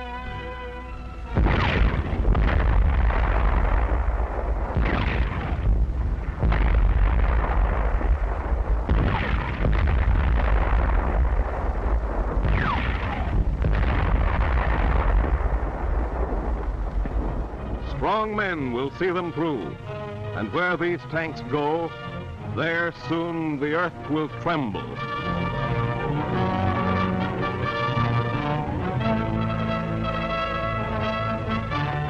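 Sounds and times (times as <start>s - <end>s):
continuous heavy rumble: 0.0s - 20.5s
shells bursting: 1.0s - 32.0s
tank guns firing: 1.3s - 19.8s.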